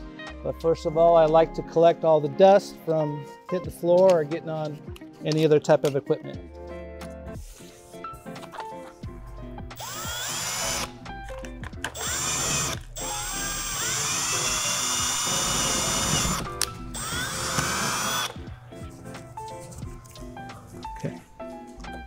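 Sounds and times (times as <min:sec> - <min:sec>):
cordless drill boring into drywall: 0:09.8 - 0:10.9, 0:12.0 - 0:18.4.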